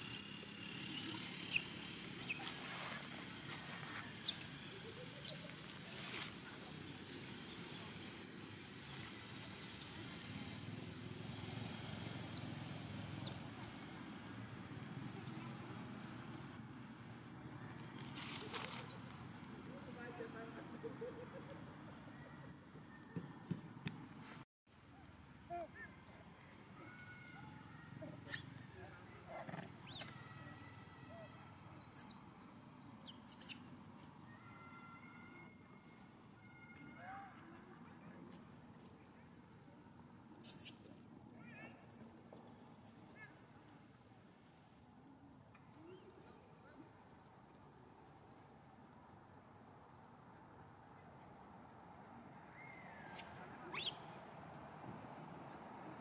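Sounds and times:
high-pitched chirping calls: 40.4 - 40.8, 53.0 - 54.0.

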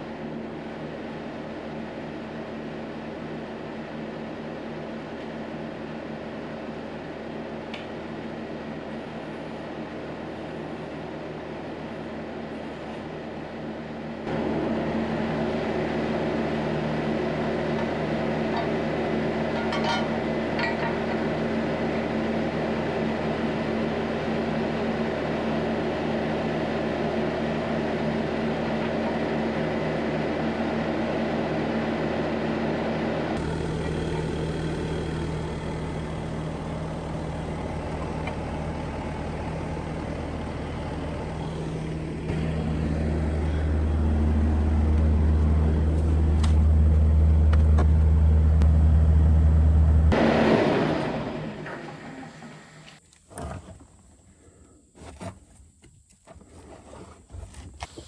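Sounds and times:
diesel engine idling: 5.5 - 53.0
deep loud rumble: 35.5 - 51.6.

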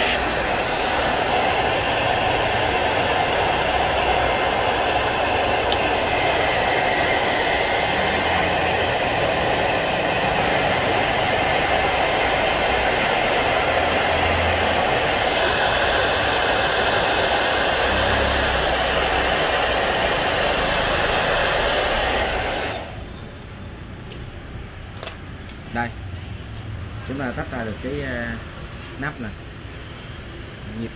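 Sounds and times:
hot air gun blowing: 0.0 - 23.0.

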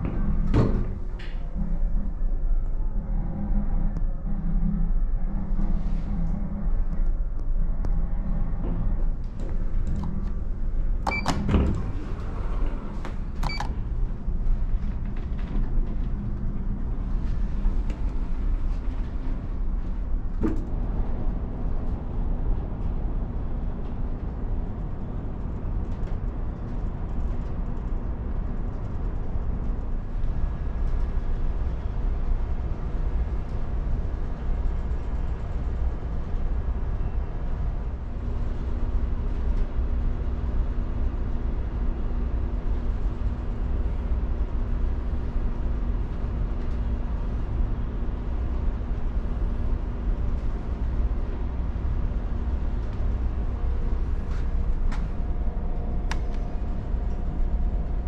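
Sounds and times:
ship engine rumble: 0.0 - 58.0
click: 56.1 - 56.4.

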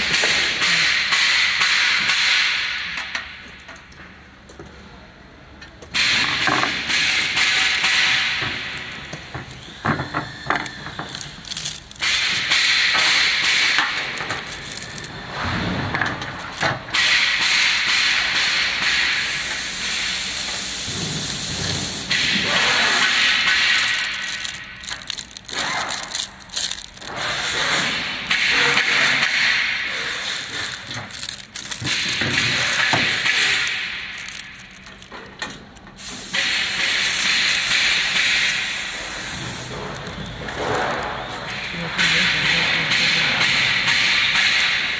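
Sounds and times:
plastic wrapping crinkling: 7.1 - 15.3, 20.7 - 27.2, 29.9 - 42.6.

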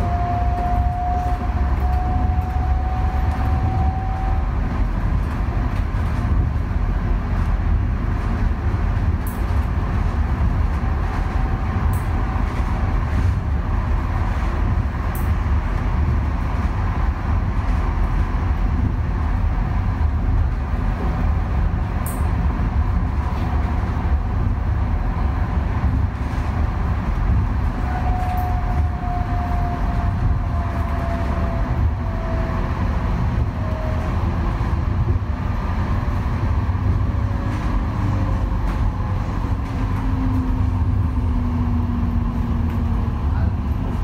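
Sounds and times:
tram wheels rumbling on rail: 0.0 - 44.0.

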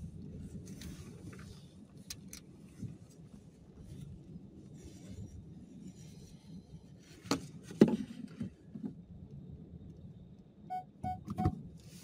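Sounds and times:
car interior rumble: 0.0 - 10.0
short electronic beeps: 10.7 - 11.6.

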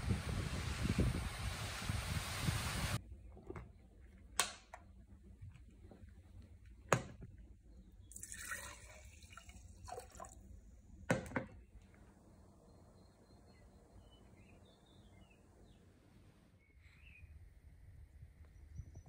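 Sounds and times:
liquid sloshing: 8.1 - 10.4.

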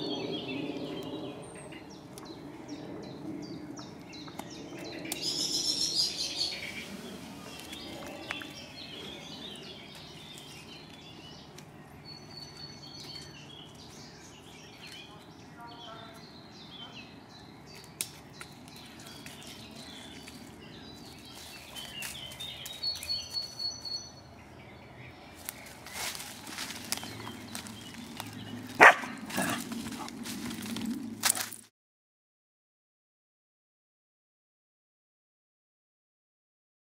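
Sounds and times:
birds chirping and singing: 0.0 - 31.2
low outdoor background: 0.0 - 31.7.

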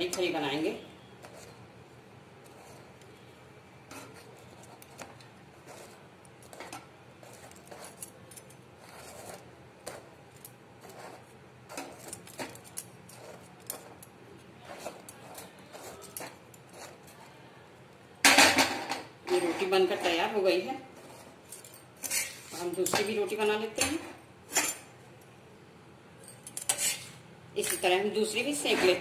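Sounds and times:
spatula scraping and clicking: 1.2 - 1.7, 2.4 - 3.2, 3.8 - 17.4, 26.5 - 27.9.

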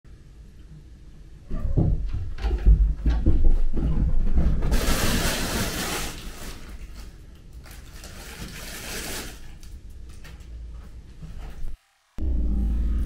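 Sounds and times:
crinkly fabric rustling: 4.7 - 9.8
low rumble: 11.6 - 13.0.

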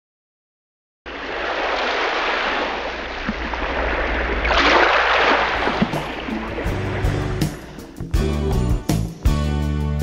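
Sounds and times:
water rushing along boat hull: 1.1 - 8.0.

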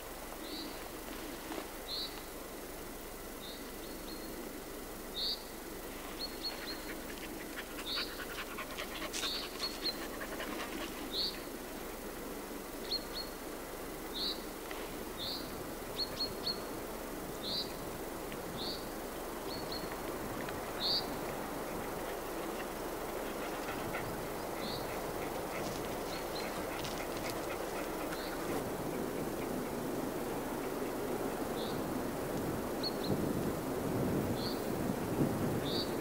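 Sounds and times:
crackling rustle: 0.0 - 3.1, 5.8 - 12.4, 19.3 - 36.0.

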